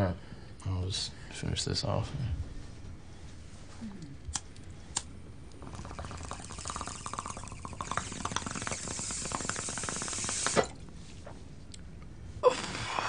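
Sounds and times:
water bubbling in a bong: 5.6s - 10.8s.

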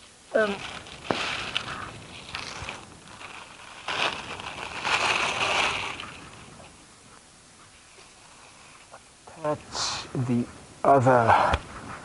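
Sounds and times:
parts rustling and scraping: 0.4s - 6.8s.

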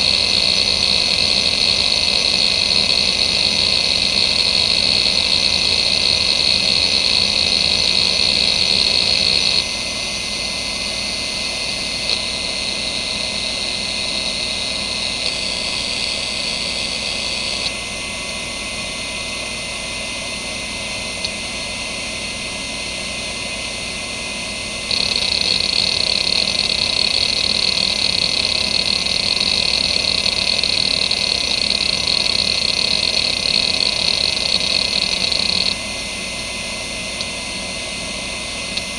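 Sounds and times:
hard drive actuator chatter: 0.0s - 9.7s, 11.7s - 17.8s, 24.9s - 35.8s
hard drive whine: 0.0s - 38.9s.

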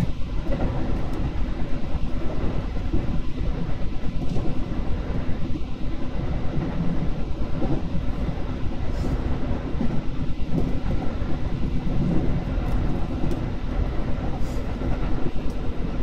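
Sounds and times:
train wheels rumbling: 0.0s - 16.0s.

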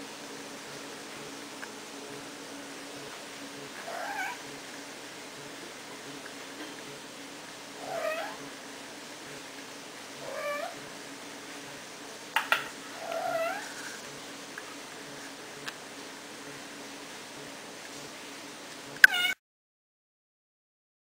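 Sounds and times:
cat meowing: 3.8s - 4.4s, 7.8s - 8.4s, 10.2s - 10.8s, 13.0s - 13.7s, 19.0s - 19.4s.

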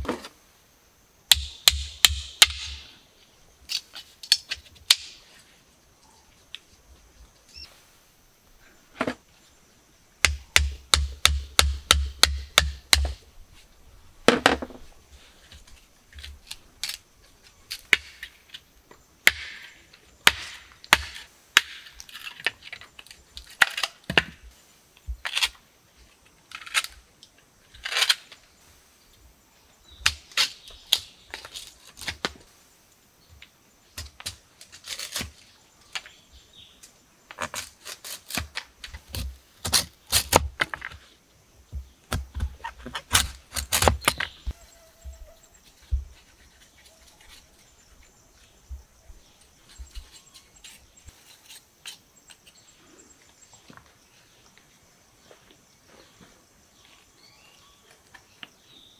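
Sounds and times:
sharp knocks and cracks: 1.3s - 2.9s, 3.7s - 5.2s, 10.2s - 13.2s, 19.2s - 24.5s, 37.3s - 41.0s, 41.7s - 44.6s.

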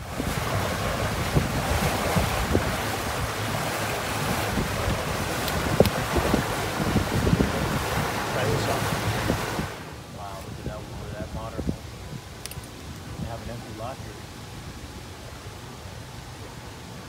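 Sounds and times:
water rushing past boat: 0.0s - 17.0s
wind buffeting microphone: 0.0s - 17.0s
sharp clicks: 12.4s - 12.7s.

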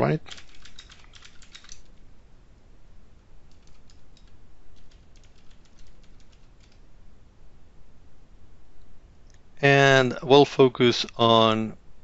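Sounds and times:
computer keyboard typing: 0.2s - 1.9s, 3.5s - 6.8s.

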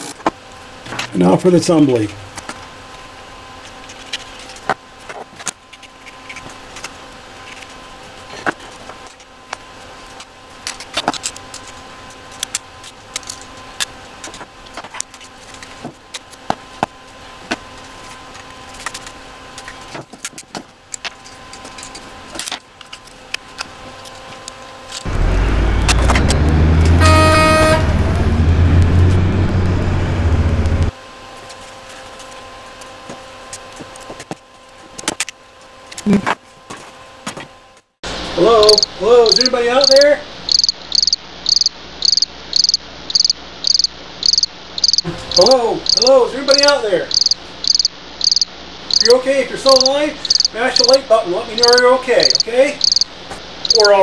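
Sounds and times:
loud low rumble: 25.1s - 30.9s
short horn toot: 26.8s - 28.3s.

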